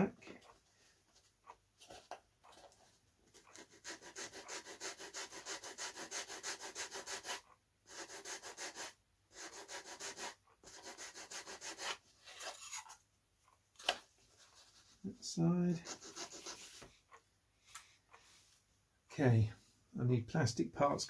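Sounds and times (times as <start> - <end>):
sanding tool rubbing foam: 3.4 - 12.0, 15.8 - 16.9.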